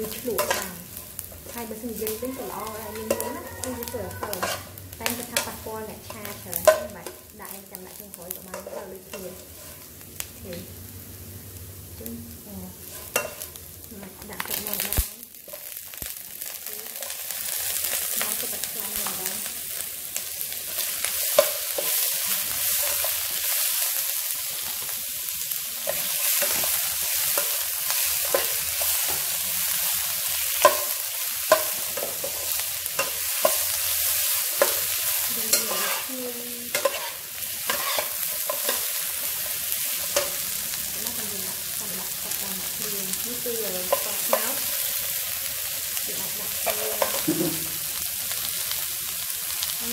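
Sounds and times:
metal spatula scraping a pan: 0:00.0 - 0:07.2, 0:08.5 - 0:09.9, 0:12.8 - 0:13.6, 0:25.8 - 0:39.4
chicken sizzling in a wok: 0:00.0 - 0:49.9.

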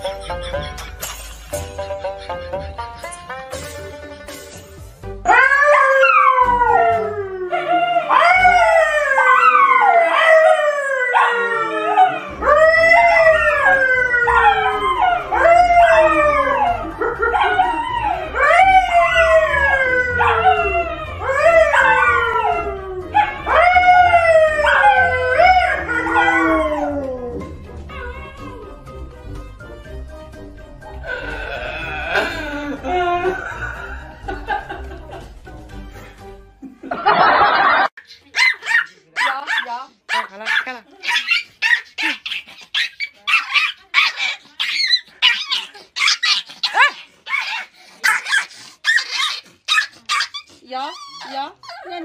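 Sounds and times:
dogs howling: 0:05.2 - 0:28.9.

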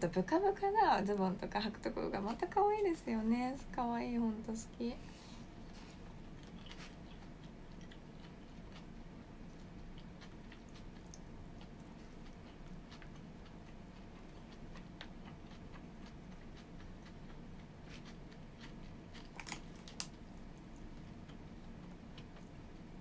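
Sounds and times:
person chewing: 0:05.6 - 0:22.7.

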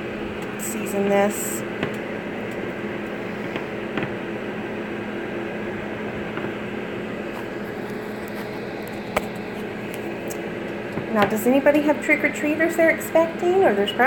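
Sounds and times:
fans humming: 0:00.0 - 0:14.0.

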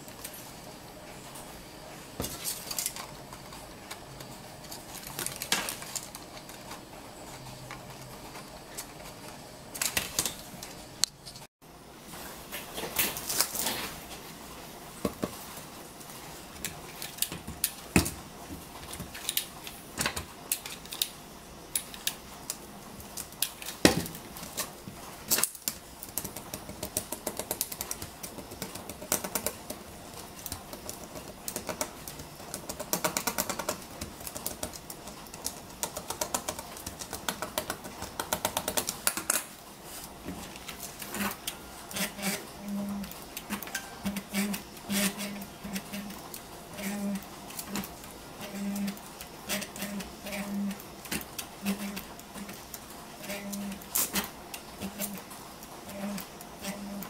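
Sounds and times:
metal boards clicking on tiles: 0:25.3 - 0:39.5.

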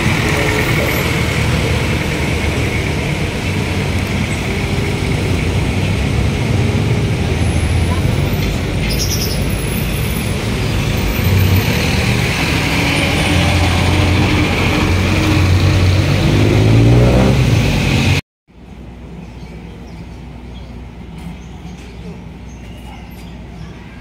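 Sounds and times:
engine accelerating: 0:00.0 - 0:18.2
road traffic passing: 0:00.0 - 0:24.0.

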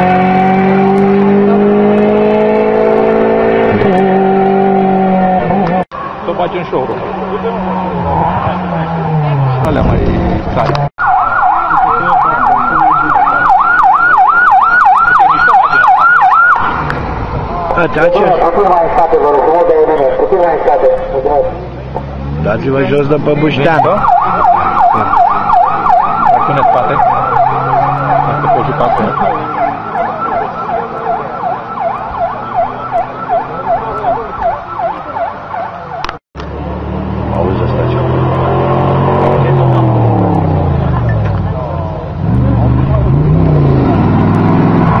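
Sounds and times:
electronic siren yelping: 0:11.0 - 0:16.7, 0:23.7 - 0:36.2.

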